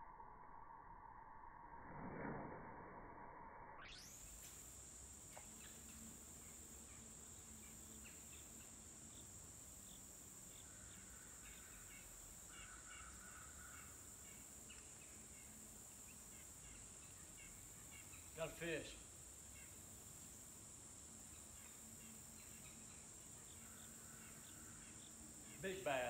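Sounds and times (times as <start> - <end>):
insects trilling: 3.8 - 26.0
bird chirps: 5.4 - 18.8, 21.2 - 26.0.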